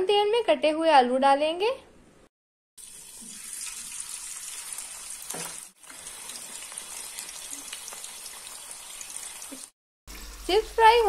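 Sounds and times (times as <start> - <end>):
chips frying in hot oil: 2.8 - 11.0.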